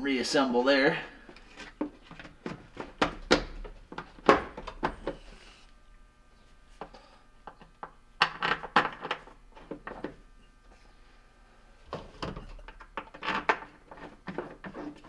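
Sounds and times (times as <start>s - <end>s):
plastic parts knocking and clicking: 7.4s - 10.2s.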